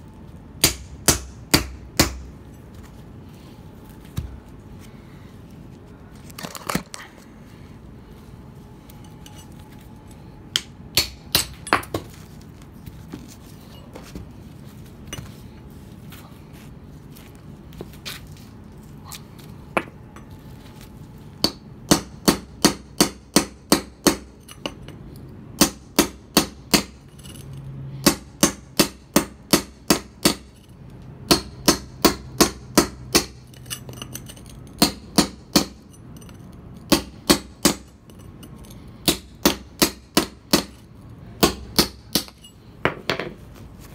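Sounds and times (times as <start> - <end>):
hammer striking chisel on stone: 0.6 - 2.3, 34.8 - 35.9, 36.8 - 38.0, 39.0 - 40.8, 41.4 - 43.4.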